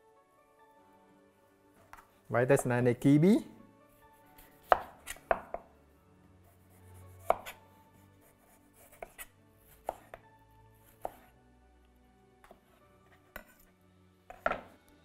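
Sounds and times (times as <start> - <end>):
knife knocking on cutting board: 4.7 - 5.6, 14.3 - 14.7.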